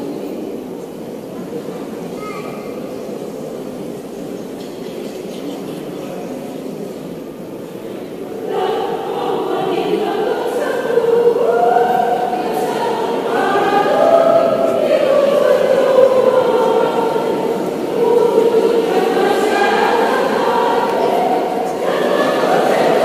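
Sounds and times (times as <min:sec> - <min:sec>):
women's choir singing: 0:07.9 - 0:23.0.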